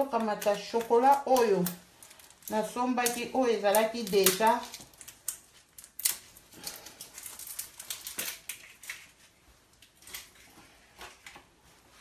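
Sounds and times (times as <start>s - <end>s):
rustling on kitchen counter: 4.1s - 12.0s.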